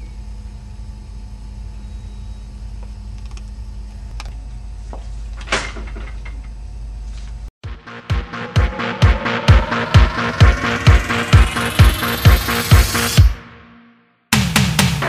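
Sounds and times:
low room hum: 0.0s - 7.5s.

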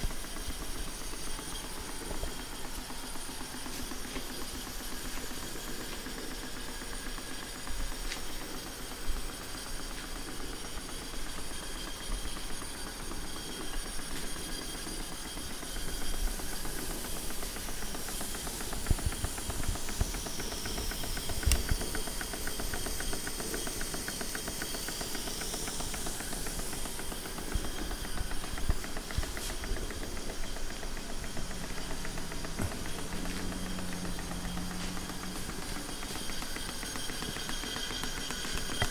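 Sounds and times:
hissing steam: 0.0s - 38.9s
small steam engines beating: 0.0s - 38.9s.

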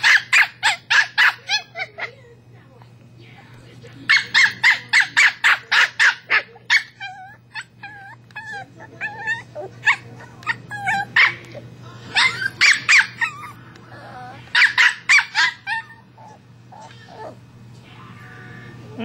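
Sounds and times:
dog whining and yipping: 6.7s - 17.4s.

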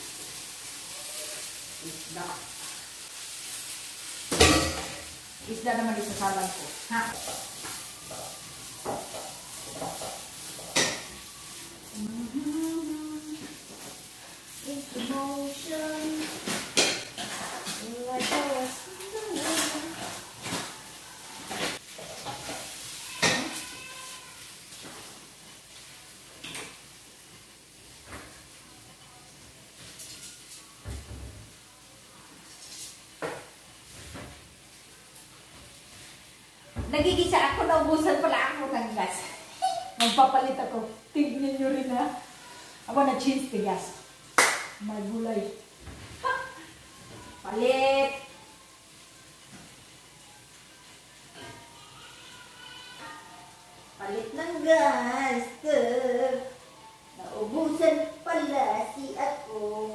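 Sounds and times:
person humming: 12.0s - 13.5s.

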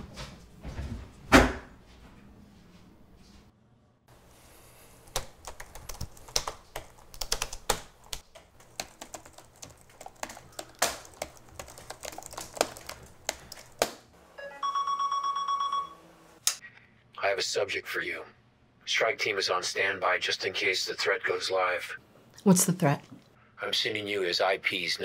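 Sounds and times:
fast typing on laptop keyboard: 5.0s - 14.0s
electronic call tone: 14.4s - 16.1s.

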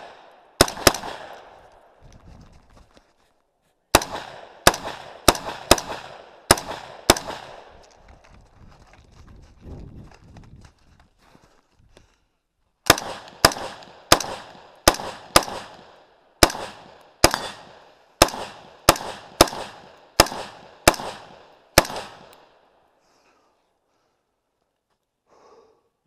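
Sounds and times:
rifle shots with echo: 0.0s - 2.0s, 3.9s - 7.8s, 12.9s - 22.8s.

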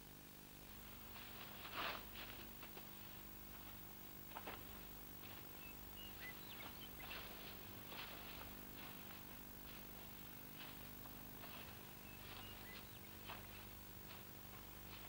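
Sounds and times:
film soundtrack hum and hiss: 0.0s - 15.0s
faint birds chirping: 4.6s - 9.1s, 10.7s - 15.0s.

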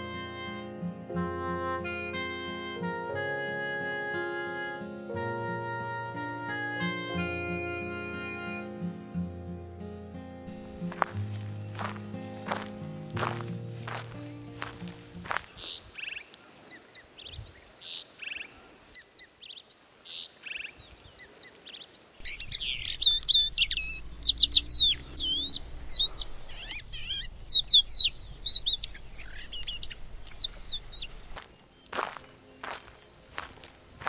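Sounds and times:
wild birds singing: 10.8s - 34.0s
low steady rumble: 22.2s - 29.4s.

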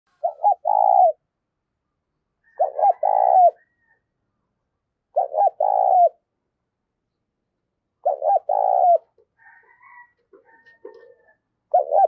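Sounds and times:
dove cooing: 0.2s - 1.2s, 2.4s - 3.9s, 5.1s - 6.3s, 8.0s - 12.0s.

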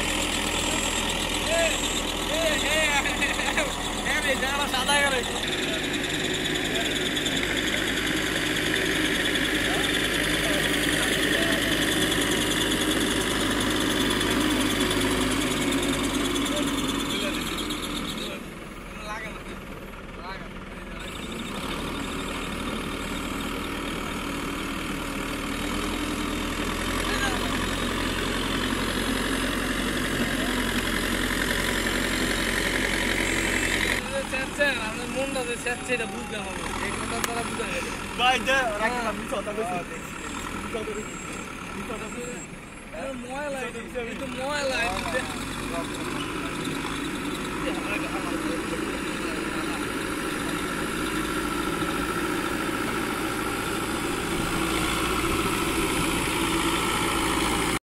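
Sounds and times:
diesel engine running: 0.0s - 57.8s.

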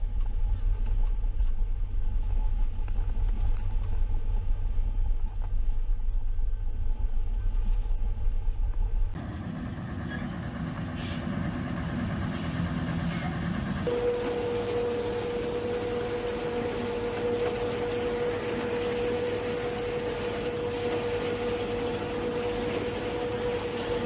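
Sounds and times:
combine harvester engine: 9.2s - 24.0s
road noise: 9.2s - 24.0s
truck diesel engine rumble: 9.2s - 24.0s.

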